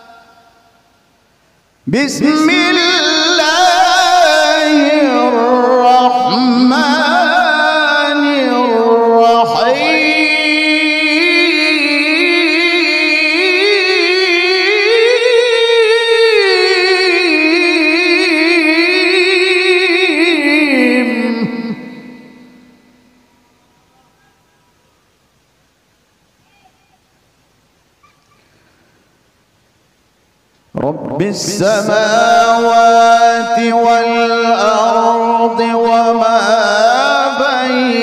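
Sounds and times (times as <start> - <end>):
man reciting in melodic chant: 1.8 - 22.7, 30.7 - 38.0.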